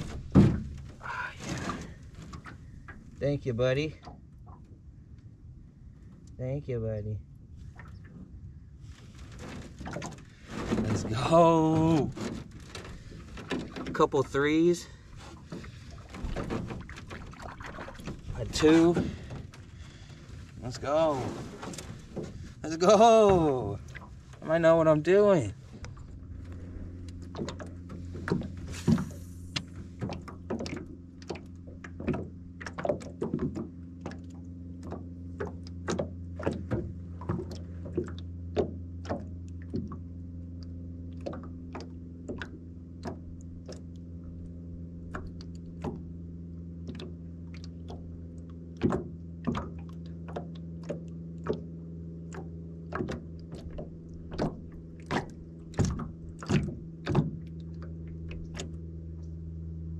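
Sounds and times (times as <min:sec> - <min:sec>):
sharp clicks and thunks: 0:00.0 - 0:03.0, 0:52.3 - 0:57.5
low electric motor hum: 0:00.0 - 0:59.9.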